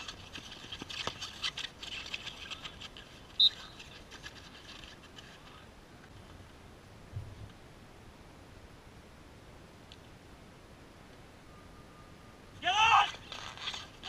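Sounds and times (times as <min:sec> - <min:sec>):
hockey sticks clicking and scraping: 0:00.0 - 0:05.6, 0:12.7 - 0:14.0
running feet: 0:00.0 - 0:05.6.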